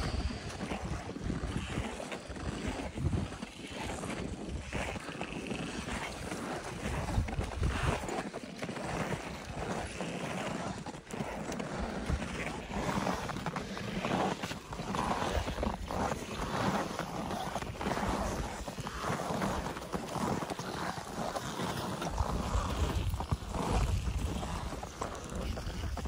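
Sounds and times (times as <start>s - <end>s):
footsteps in snow: 0.1s - 26.0s
wind buffeting microphone: 6.9s - 8.1s.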